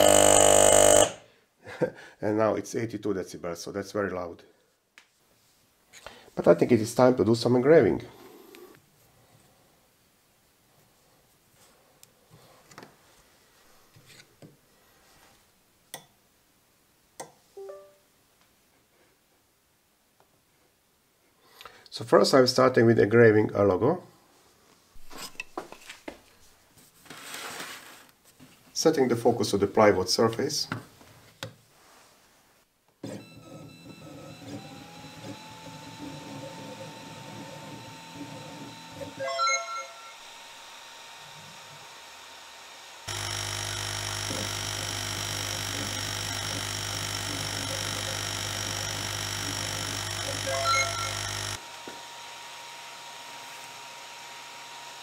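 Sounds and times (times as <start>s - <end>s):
stepper motors whirring: 0.0s - 1.2s, 34.3s - 39.2s, 40.0s - 55.0s
short ringing tone: 17.6s - 18.0s, 39.2s - 40.4s, 50.4s - 51.6s.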